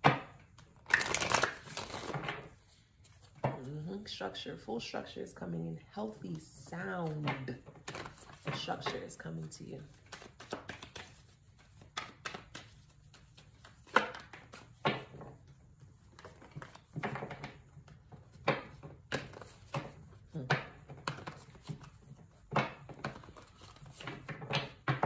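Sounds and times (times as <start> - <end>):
cards snapping and flicking: 0.8 - 2.2, 10.0 - 14.8.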